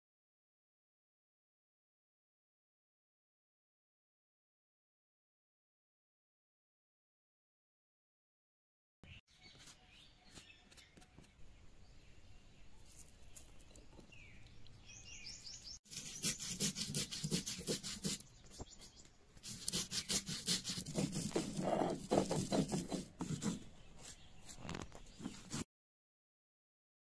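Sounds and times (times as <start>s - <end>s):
bird chirps: 9.0s - 16.4s, 18.1s - 19.2s
stone roller scraping grinding stone: 19.4s - 23.6s.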